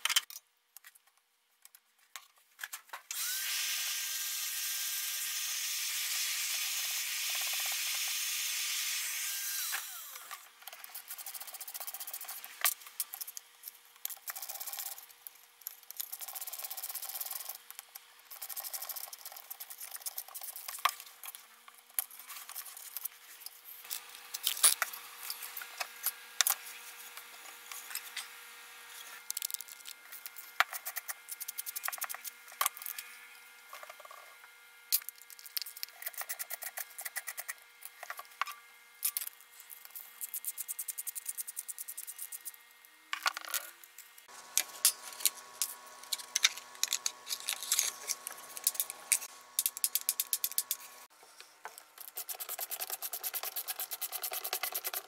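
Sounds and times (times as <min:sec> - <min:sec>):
screwdriver clicks and scrapes: 0:22.0 - 0:26.6, 0:44.6 - 0:50.9.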